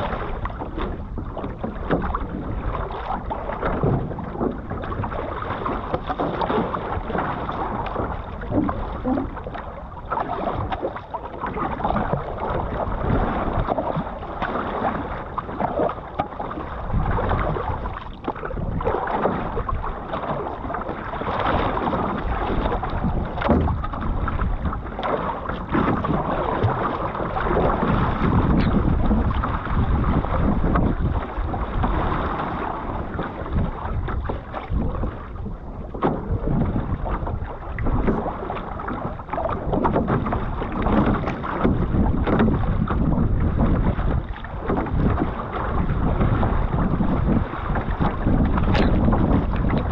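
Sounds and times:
paddle pulling through water: 0:00.0 - 0:49.9
water splashing along hull: 0:00.0 - 0:49.9
wind rumbling on microphone: 0:00.0 - 0:49.9.

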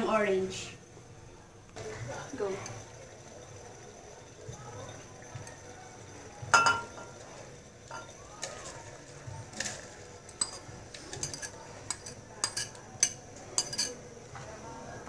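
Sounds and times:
metal fork clinking on ceramic bowl: 0:10.4 - 0:14.0.

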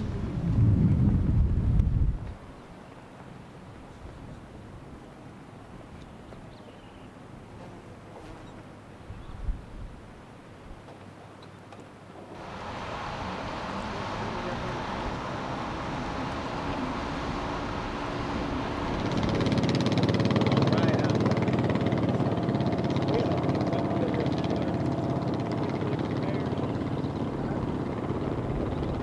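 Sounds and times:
off-road vehicle engine running: 0:12.3 - 0:29.0.

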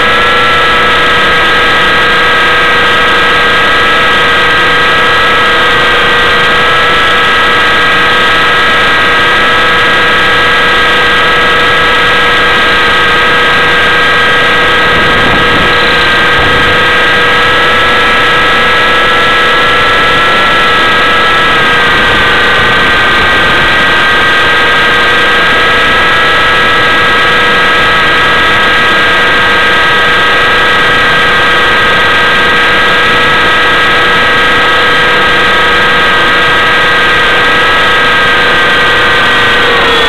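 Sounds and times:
rc helicopter rotor whine: 0:00.0 - 0:40.0
rushing noise: 0:13.2 - 0:26.1.

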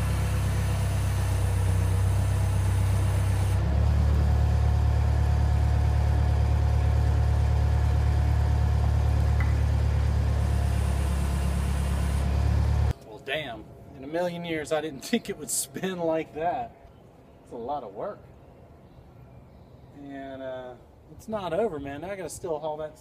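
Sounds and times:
skid-steer loader engine running: 0:00.0 - 0:12.9.

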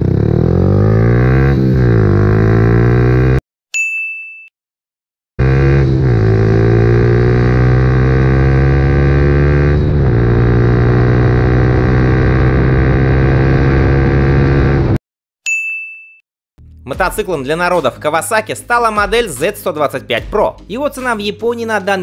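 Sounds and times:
motorcycle engine accelerating: 0:00.0 - 0:03.4, 0:05.4 - 0:15.0
short bright ding: 0:03.8 - 0:04.5, 0:15.5 - 0:16.2.

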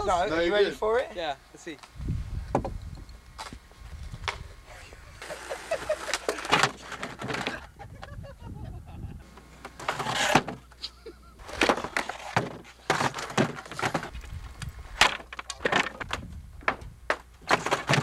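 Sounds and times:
skateboard clattering on wood: 0:05.2 - 0:07.7, 0:09.6 - 0:10.8, 0:11.4 - 0:14.2, 0:15.0 - 0:18.0
skateboard wheels scraping: 0:05.2 - 0:07.7, 0:09.3 - 0:10.8, 0:11.4 - 0:14.3.

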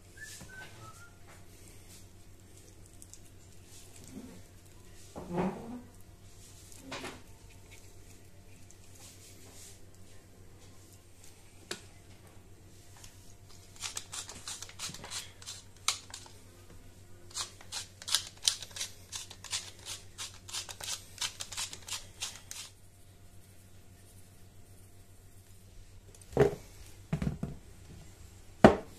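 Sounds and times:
spice grinder grinding clicks: 0:17.3 - 0:22.7.

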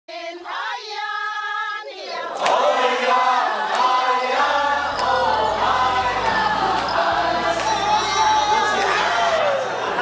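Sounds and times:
choir singing: 0:00.1 - 0:10.0.

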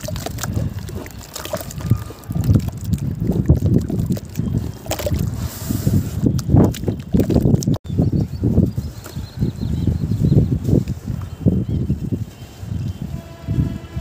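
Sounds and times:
hands squelching wet cement: 0:00.0 - 0:07.8.

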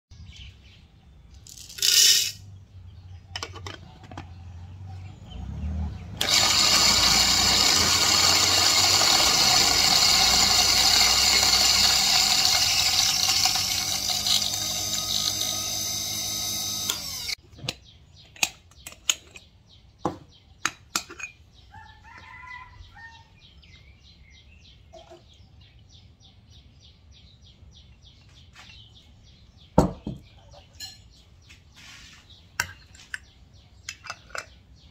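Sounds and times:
electric coffee grinder whine: 0:06.2 - 0:17.4.

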